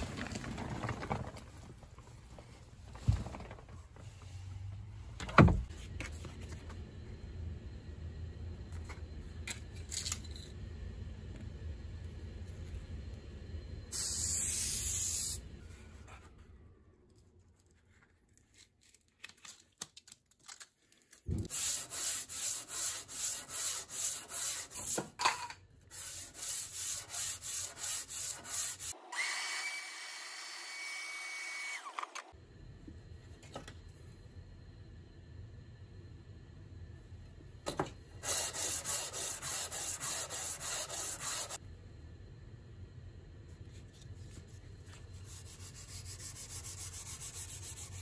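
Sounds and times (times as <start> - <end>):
hand plane rubbed on sandpaper: 21.5 - 24.8, 38.2 - 41.6.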